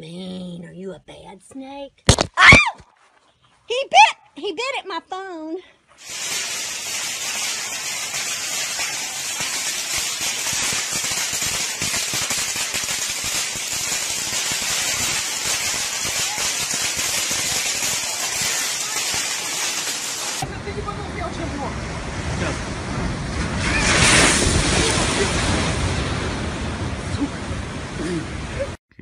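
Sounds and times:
fireworks crackling and popping: 0:02.1 - 0:03.0, 0:05.9 - 0:28.8
fireworks hissing: 0:05.9 - 0:20.9, 0:23.2 - 0:26.9.

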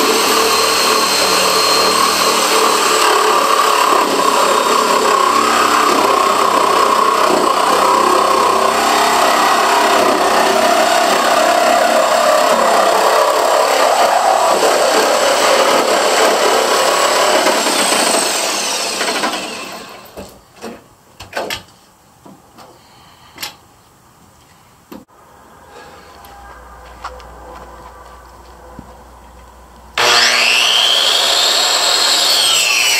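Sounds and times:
power tool cutting wood: 0:00.0 - 0:20.2, 0:30.0 - 0:32.9.

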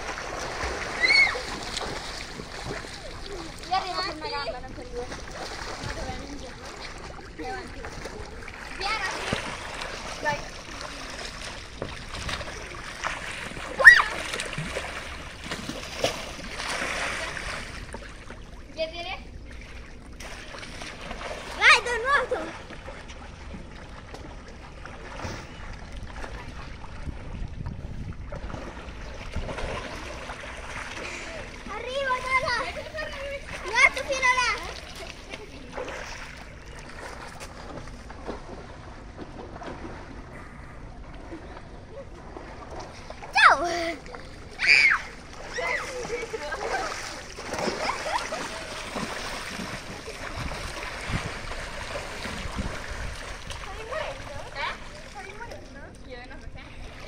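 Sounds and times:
water sloshing in pool: 0:00.0 - 0:57.0
children shouting: 0:00.9 - 0:01.6, 0:13.8 - 0:14.4, 0:44.5 - 0:47.0.

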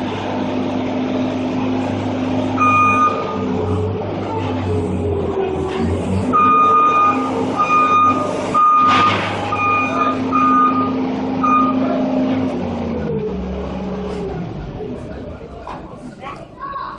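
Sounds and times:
skid steer engine running: 0:00.0 - 0:15.7
backup alarm beeping: 0:02.5 - 0:03.6, 0:06.3 - 0:12.0.

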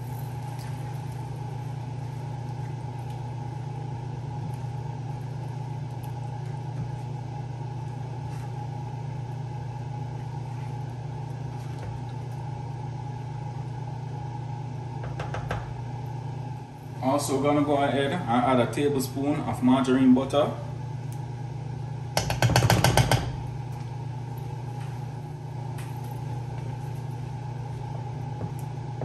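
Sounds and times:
low machine hum: 0:00.0 - 0:29.0.

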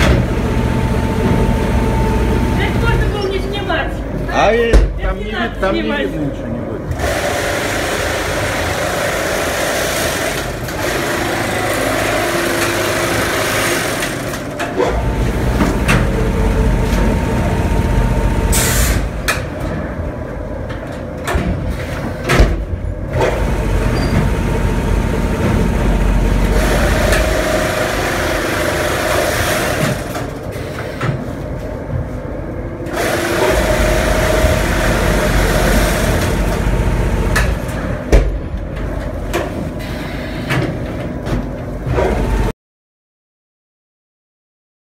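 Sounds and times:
bag-filling machine running: 0:06.9 - 0:19.2, 0:23.1 - 0:30.8, 0:32.8 - 0:38.1.

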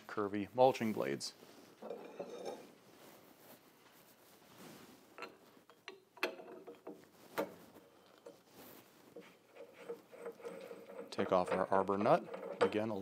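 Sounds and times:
wrench clinking on metal nut: 0:10.2 - 0:13.0.

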